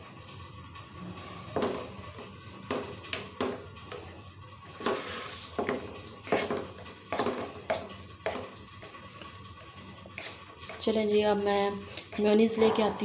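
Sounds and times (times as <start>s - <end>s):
spoon scraping metal wok: 4.8s - 9.3s, 9.9s - 13.0s.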